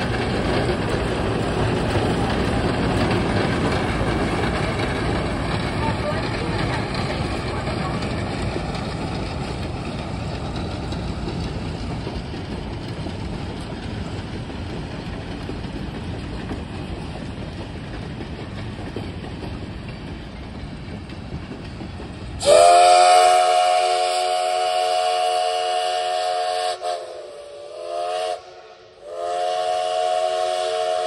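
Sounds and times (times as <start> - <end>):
train wheels rumbling on track: 0.0 - 31.0
steam whistle blast: 22.4 - 31.0.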